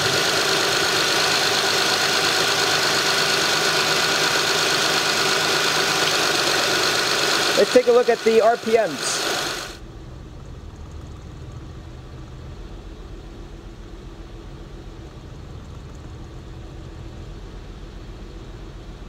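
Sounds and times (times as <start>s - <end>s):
rough car engine idling: 0.0s - 9.8s.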